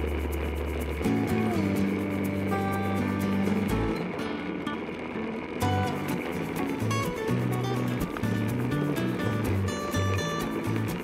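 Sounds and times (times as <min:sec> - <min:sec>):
background music with steady beat: 0:00.0 - 0:04.1.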